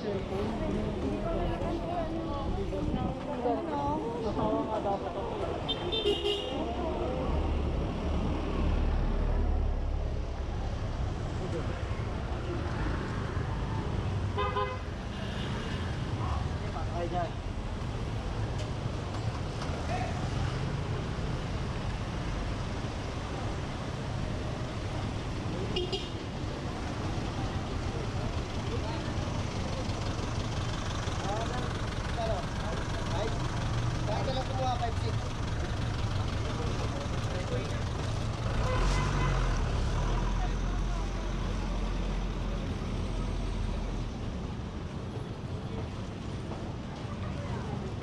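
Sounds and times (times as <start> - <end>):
road traffic rumble: 0.0 - 48.0
low engine rumble: 26.2 - 38.7.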